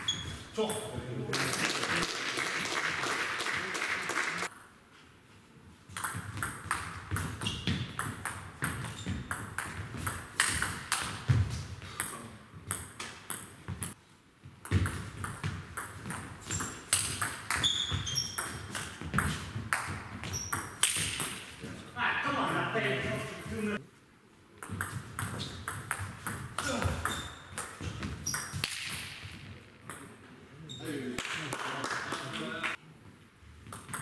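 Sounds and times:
shoes squeaking on floor: 0.0 - 0.9, 6.2 - 10.6, 14.7 - 21.6, 24.7 - 29.6.

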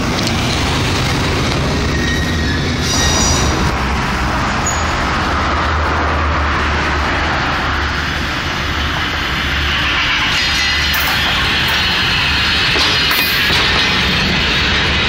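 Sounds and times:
wheels clattering on rail: 0.0 - 6.1, 6.7 - 15.0
diesel locomotive drone: 0.0 - 15.0
high wheel squeal: 1.7 - 5.5, 7.7 - 15.0.

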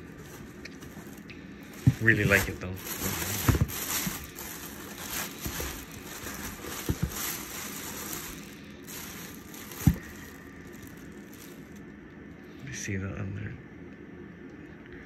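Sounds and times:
plastic bag crinkling: 0.0 - 11.9
dull thumps: 1.7 - 11.5.

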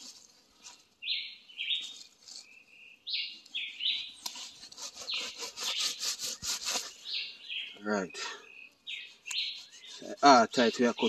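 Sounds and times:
birds calling: 1.0 - 11.0
machete sawing through fruit: 3.8 - 7.2, 8.9 - 10.9.

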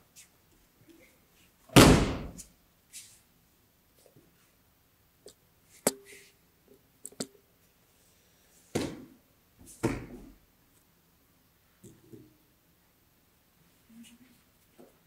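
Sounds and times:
body thudding onto mats: 1.8 - 2.4.

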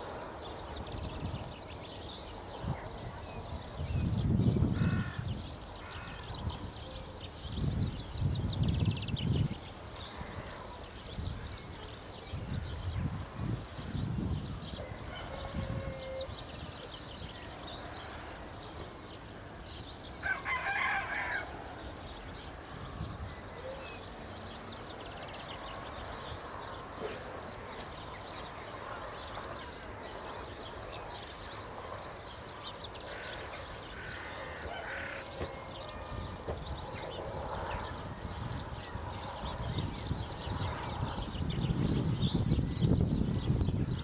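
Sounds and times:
loud bird call: 14.8 - 16.5, 33.0 - 38.1
small birds chirping: 21.8 - 44.0.

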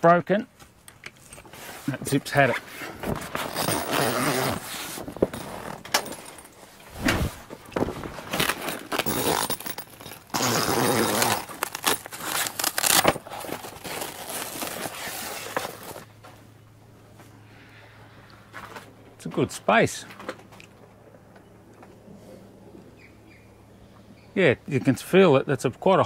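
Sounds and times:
canvas rustling and scraping: 1.2 - 16.4.

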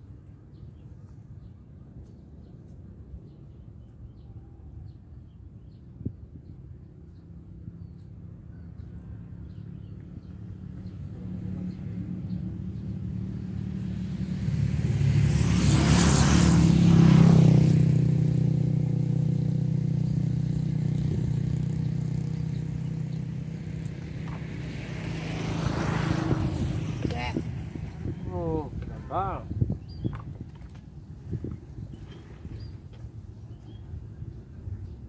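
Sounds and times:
another engine approaching: 7.7 - 30.1
vehicle engine passing by: 8.8 - 29.8.

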